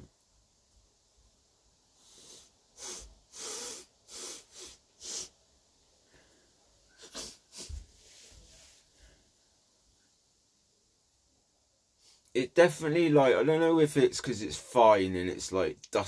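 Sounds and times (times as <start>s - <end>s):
soft breath through nose: 1.9s - 5.4s, 12.0s - 12.3s
sharp nasal sniffs: 2.0s - 5.4s, 7.0s - 7.8s.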